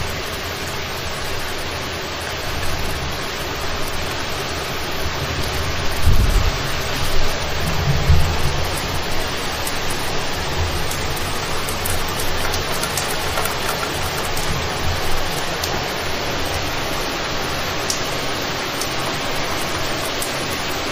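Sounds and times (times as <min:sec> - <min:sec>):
heavy rain pouring: 0:00.0 - 0:20.9
wind rumbling on microphone: 0:02.5 - 0:17.0.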